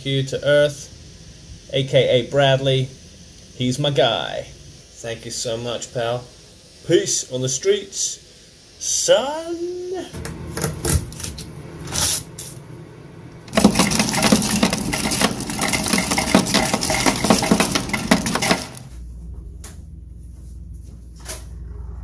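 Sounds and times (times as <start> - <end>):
ice cubes clattering: 13.5 - 18.9.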